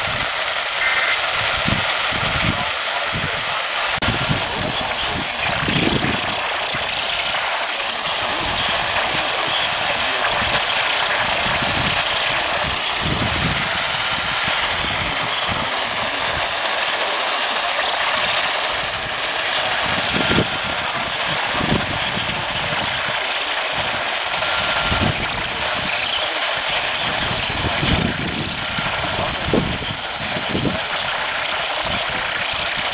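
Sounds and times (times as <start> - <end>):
radio static hiss: 0.0 - 32.9.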